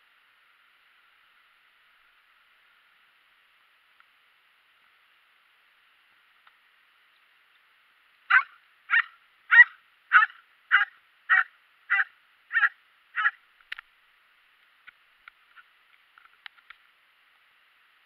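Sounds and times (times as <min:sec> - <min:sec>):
dog barking: 0:08.3 - 0:13.4.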